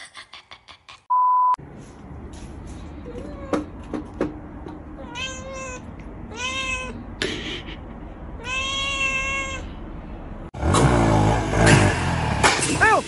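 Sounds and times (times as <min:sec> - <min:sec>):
cat meowing: 0:05.0 - 0:07.0, 0:08.4 - 0:09.8.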